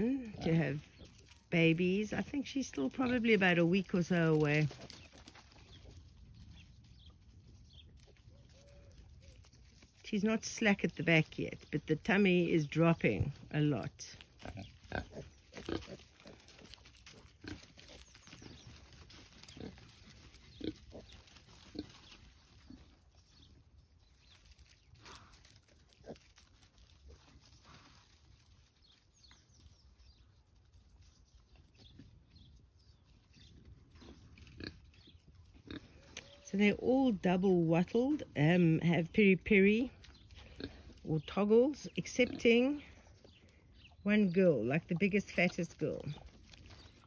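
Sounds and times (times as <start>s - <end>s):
pigs grunting quietly: 13.8s - 23.1s.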